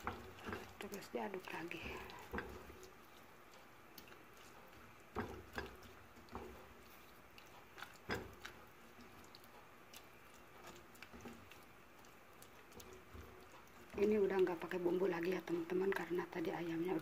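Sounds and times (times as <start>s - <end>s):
wet squishes of stirred sauce: 0.0s - 17.0s
spatula knocking against pot: 1.8s - 2.9s, 5.0s - 6.8s, 7.9s - 8.6s.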